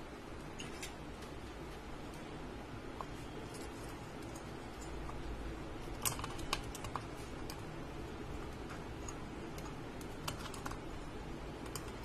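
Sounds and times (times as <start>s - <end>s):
heatsink clicks and ticks: 2.9s - 12.0s.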